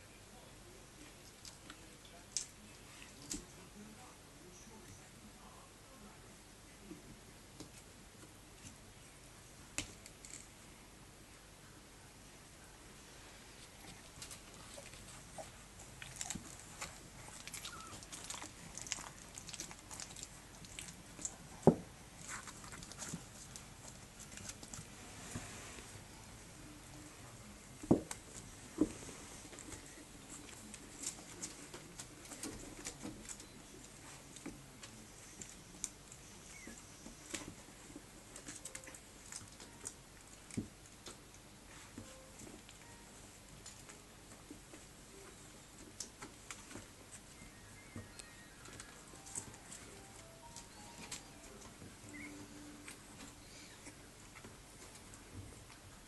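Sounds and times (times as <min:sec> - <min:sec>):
puppies shifting on carpet: 0:13.4 - 0:26.0, 0:26.9 - 0:56.0.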